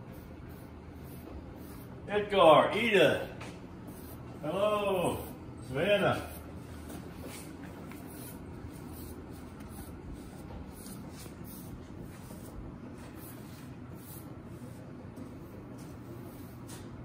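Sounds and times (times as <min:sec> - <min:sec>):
brush stroking horse coat: 0:04.0 - 0:16.8.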